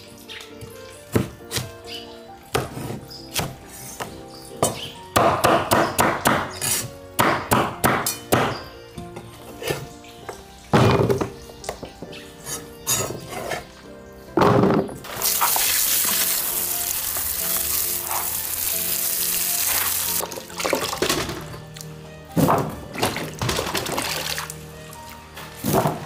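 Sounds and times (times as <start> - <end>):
hose spraying water into basin: 15.1 - 21.4, 23.3 - 25.2.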